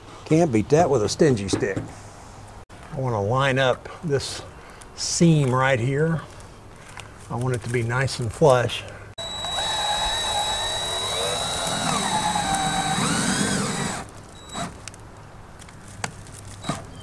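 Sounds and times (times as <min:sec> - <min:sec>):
cordless drill driving screw: 0:09.2 - 0:14.8.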